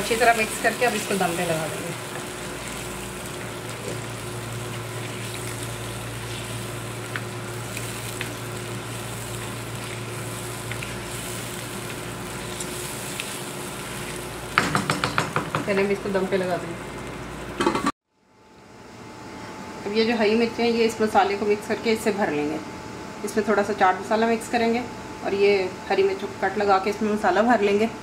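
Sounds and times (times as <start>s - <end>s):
chicken sizzling in a wok: 0.0s - 17.8s.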